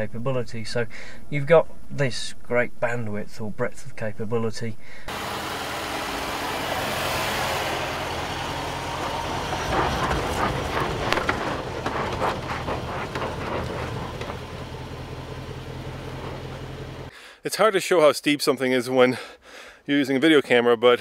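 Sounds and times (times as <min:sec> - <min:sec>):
car engine running: 0:05.1 - 0:17.1
tyres crunching on gravel: 0:05.1 - 0:17.1.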